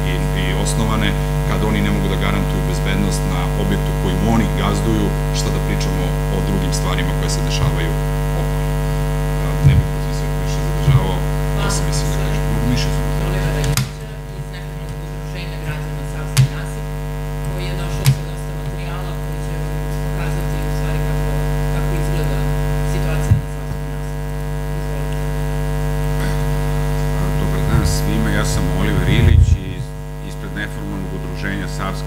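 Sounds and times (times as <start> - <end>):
electrical mains hum: 0.0 - 32.0
microphone handling knocks: 9.6 - 10.0, 23.2 - 23.9, 29.0 - 29.8.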